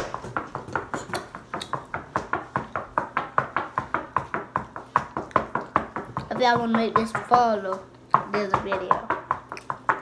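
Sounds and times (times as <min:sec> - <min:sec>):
rapid sharp tapping: 0:00.0 - 0:10.0.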